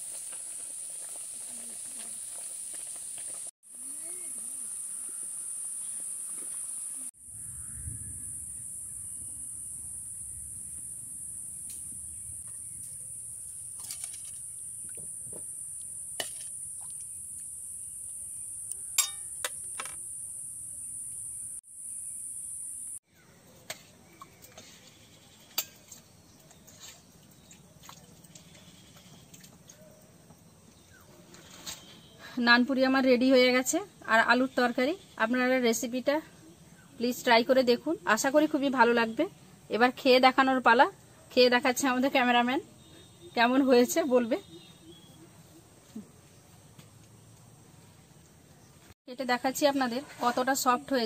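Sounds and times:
high-pitched hiss: 0.0s - 23.0s
steel ladle clinking on pot: 19.0s - 19.6s.

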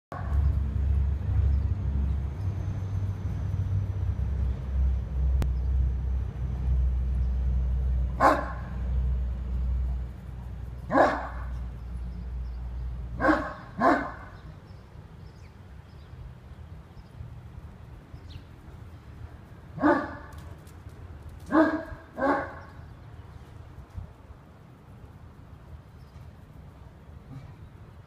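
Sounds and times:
low rumble: 0.1s - 14.6s
dog barking: 8.2s - 8.6s, 10.9s - 11.5s, 13.2s - 14.3s, 19.8s - 20.2s, 21.5s - 22.7s.

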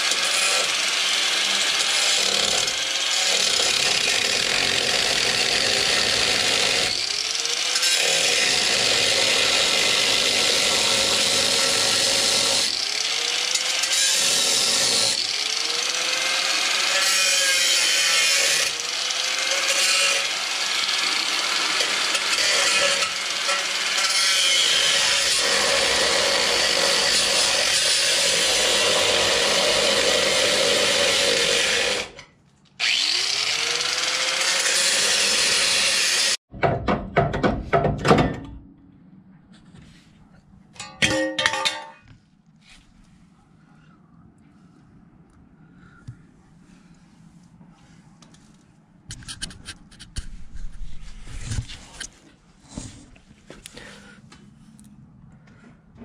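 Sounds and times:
grinder cutting steel: 0.0s - 36.5s.

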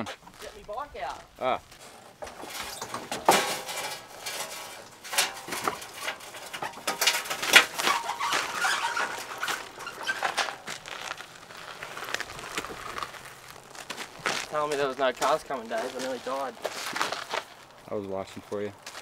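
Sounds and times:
dirt bike clunking on metal ramp: 2.1s - 11.2s.

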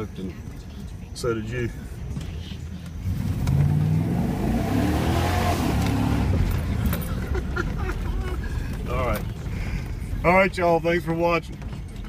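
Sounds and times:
truck engine revving: 2.9s - 9.5s
tyres churning through mud: 3.0s - 10.4s.

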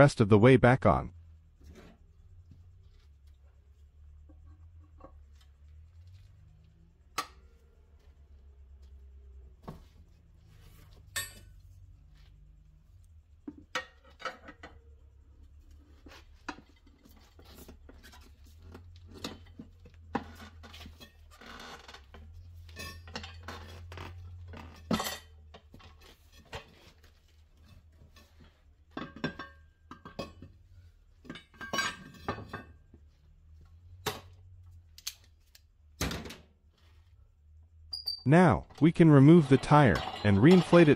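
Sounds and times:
metal clanks and clinks: 10.9s - 11.9s, 13.5s - 15.0s, 16.4s - 26.9s, 27.6s - 33.1s, 39.4s - 40.9s.

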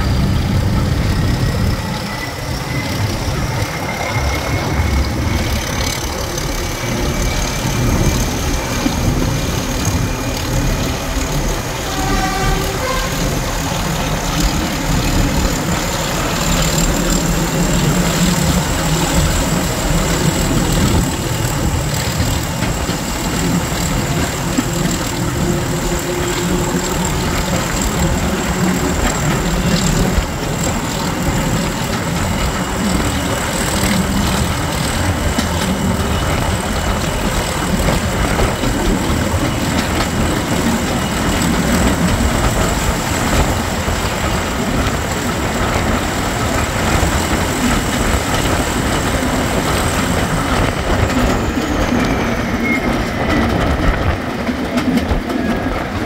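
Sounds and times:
diesel locomotive engine rumble: 0.0s - 56.0s
train clatter: 0.0s - 56.0s
steady high whistle: 51.7s - 53.5s.

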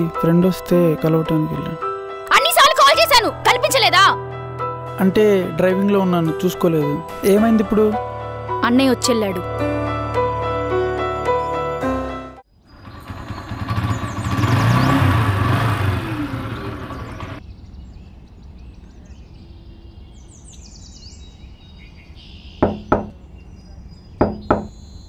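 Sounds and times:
vehicle passing with rumble: 12.7s - 17.4s
faint bird chirps: 16.9s - 25.0s
knocking on a door: 22.6s - 23.2s, 24.2s - 24.8s.

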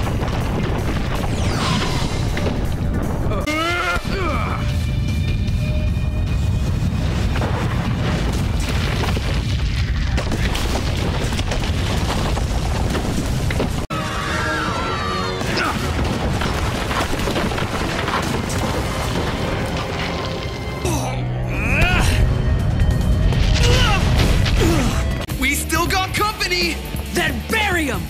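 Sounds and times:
earthquake rumble and breaking rock: 0.0s - 13.9s, 15.4s - 20.9s, 22.5s - 25.3s.

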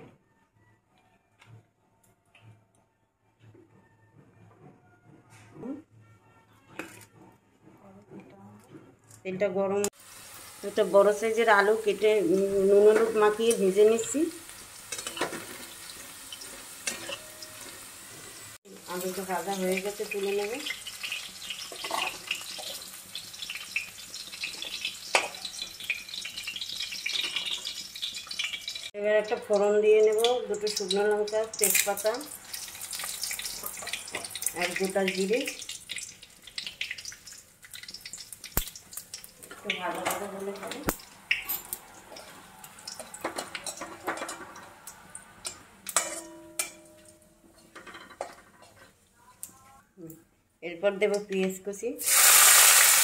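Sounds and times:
potatoes sizzling in oil: 9.9s - 46.0s, 52.0s - 53.0s
metal spatula clinking: 14.9s - 15.6s, 16.3s - 17.8s, 21.0s - 22.8s, 42.9s - 48.9s
crackling oil spatter: 18.8s - 29.6s, 30.2s - 46.1s.

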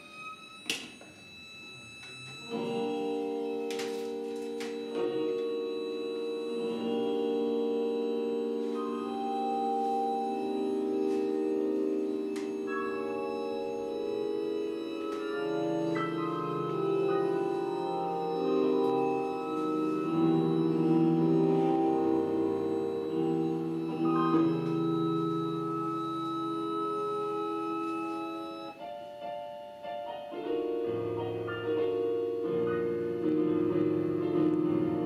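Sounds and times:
slow organ-like chords: 0.0s - 35.0s.

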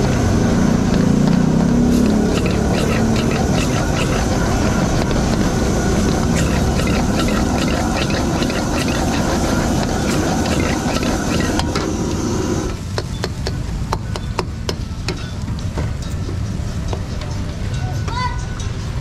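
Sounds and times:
gas burner rushing: 0.0s - 12.9s.

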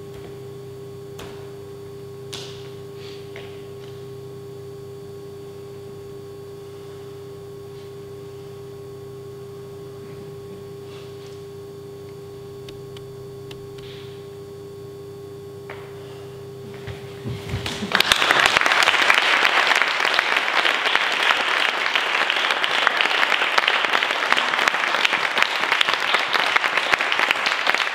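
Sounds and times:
steady low hum: 0.0s - 23.9s
audience applause: 17.4s - 27.9s.

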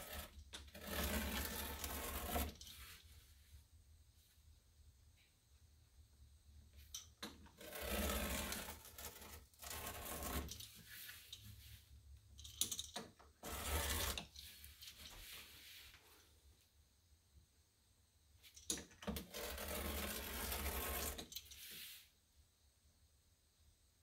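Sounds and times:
pounce wheel perforating paper: 0.0s - 2.9s, 7.6s - 10.8s, 13.4s - 14.6s, 19.0s - 21.3s.

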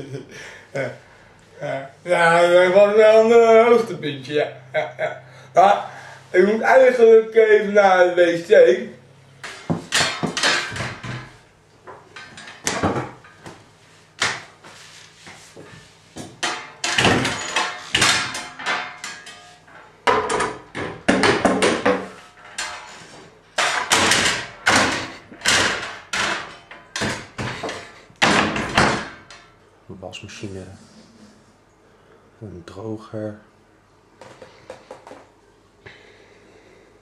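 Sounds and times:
bangs and thumps in small room: 9.4s - 14.8s, 15.4s - 29.6s.

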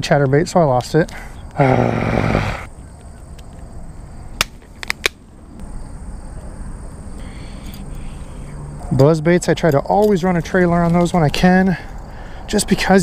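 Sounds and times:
man growling: 1.6s - 2.7s.

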